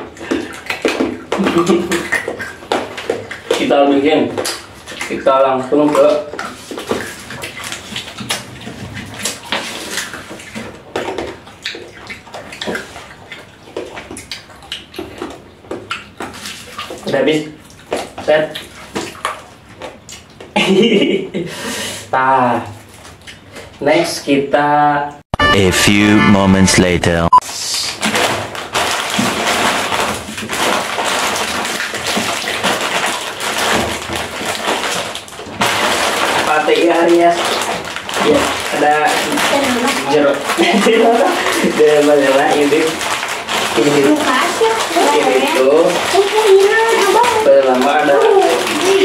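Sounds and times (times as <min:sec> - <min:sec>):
plastic wrappers crinkling: 0:28.0 - 0:49.0.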